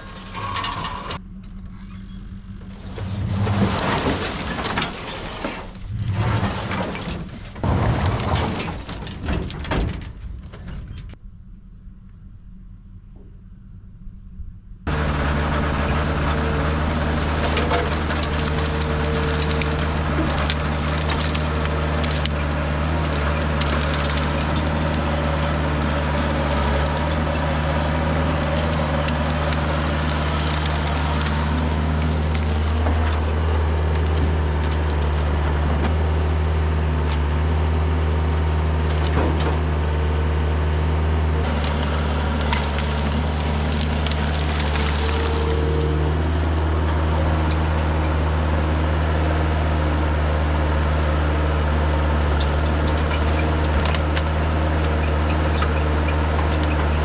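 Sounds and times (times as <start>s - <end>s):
diesel engine running under load: 0.0s - 57.0s
branches cracking and snapping: 17.0s - 39.7s, 41.4s - 47.6s, 52.2s - 57.0s.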